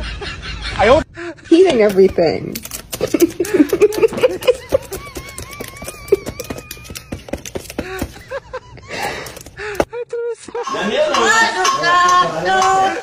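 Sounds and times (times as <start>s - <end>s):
keyboard keys clicking: 1.8s - 8.3s.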